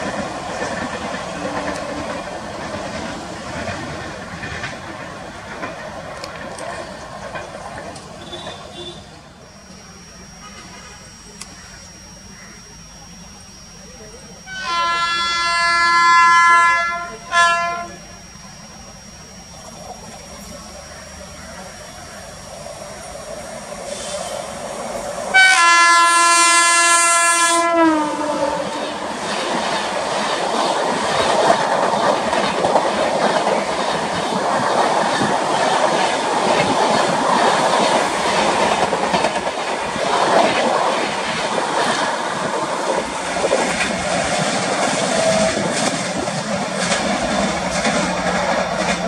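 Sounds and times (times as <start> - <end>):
wheel clatter over rail joints: 0.0 - 8.8, 29.0 - 49.0
train coaches rushing past: 0.0 - 49.0
train horn blast: 8.2 - 9.2, 14.4 - 18.1, 25.3 - 29.1.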